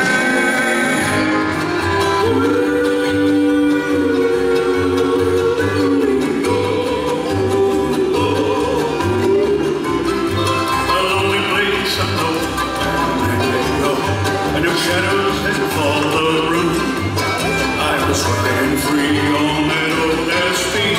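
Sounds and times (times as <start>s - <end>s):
bluegrass band playing: 0.0s - 20.9s
upright bass beat: 5.0s - 20.9s.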